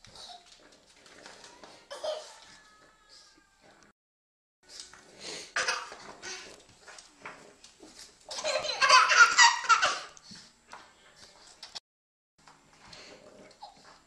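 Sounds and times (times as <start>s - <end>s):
baby laughing: 5.6s - 6.4s, 8.3s - 10.2s.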